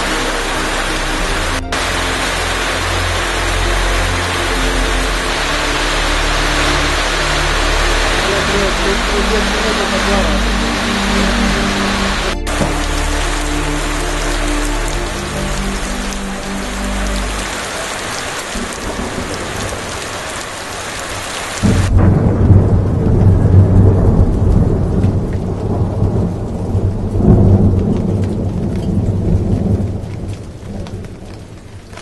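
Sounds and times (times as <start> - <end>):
rain on puddle and gravel: 0.0 - 32.0
low rolling thunder: 17.8 - 31.8.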